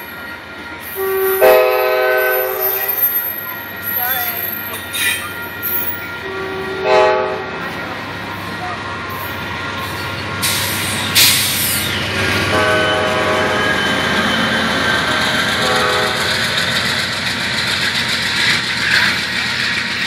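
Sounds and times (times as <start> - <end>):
diesel locomotive passing: 0.0 - 20.0
train horn blasts: 0.4 - 10.0, 12.2 - 14.4, 15.6 - 16.4
train wheels clattering on rails: 13.7 - 20.0.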